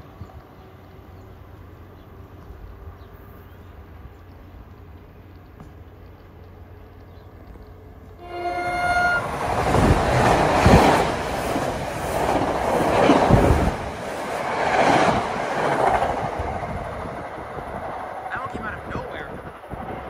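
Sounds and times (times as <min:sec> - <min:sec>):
train passing at speed: 0:00.0 - 0:20.0
train wheels clattering: 0:09.2 - 0:18.2.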